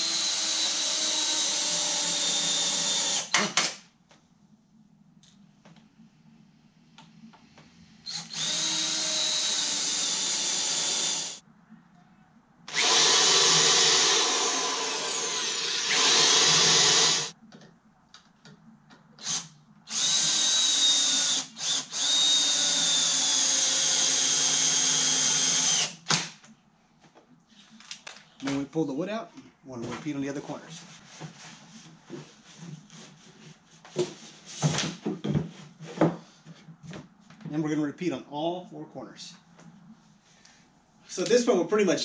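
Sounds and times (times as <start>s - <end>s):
electric drills running: 0.0s - 3.4s, 8.1s - 11.4s, 12.7s - 17.3s, 19.2s - 26.0s.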